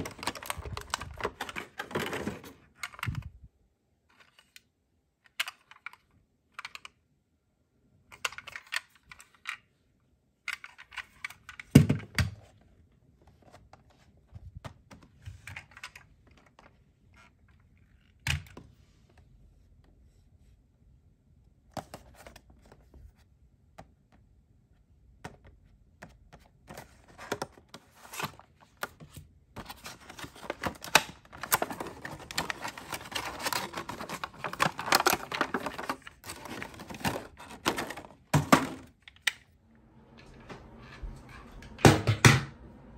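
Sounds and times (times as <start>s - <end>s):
plastic packaging crinkling: 0.0s - 2.6s, 29.6s - 38.2s.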